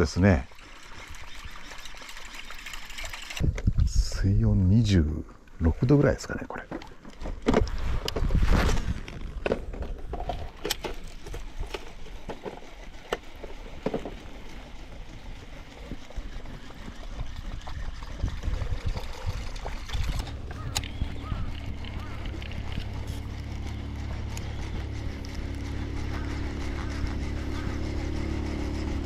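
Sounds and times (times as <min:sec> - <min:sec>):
water lapping against boat hull: 0:00.0 - 0:03.5, 0:05.2 - 0:29.0
low steady hum: 0:00.0 - 0:29.0.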